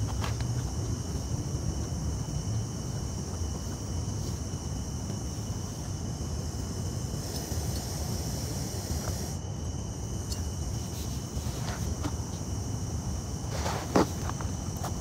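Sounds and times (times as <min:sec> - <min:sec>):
night insects droning: 0:00.0 - 0:15.0
gas camp stove burner roar: 0:05.9 - 0:10.8.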